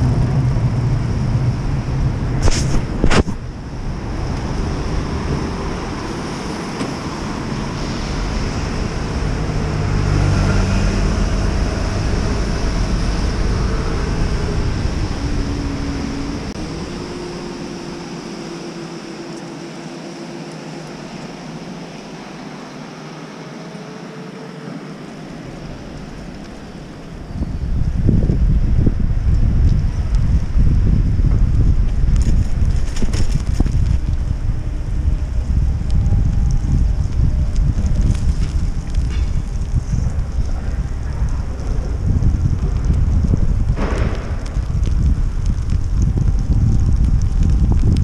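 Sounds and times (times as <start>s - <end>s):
faint engine whines: 0.0s - 33.0s
road traffic: 0.0s - 48.0s
wind rumble: 0.0s - 48.0s.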